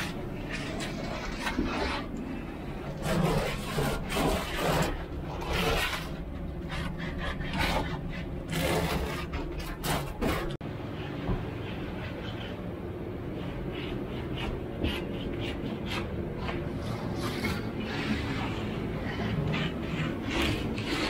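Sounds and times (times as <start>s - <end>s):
hand tool rasping on wood: 2.8s - 10.6s, 13.4s - 21.0s.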